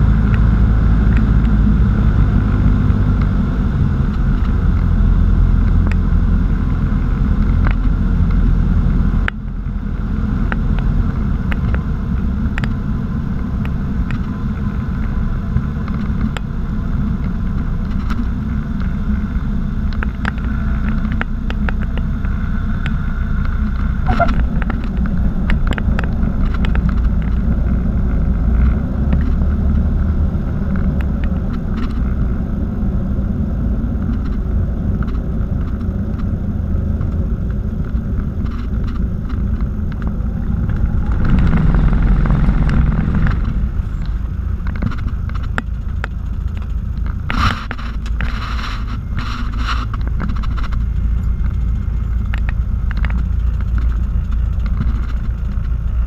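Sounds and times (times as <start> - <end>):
short high-pitched sounds: 24.1 - 24.4
aircraft engine and propeller drone: 30.6 - 56.0.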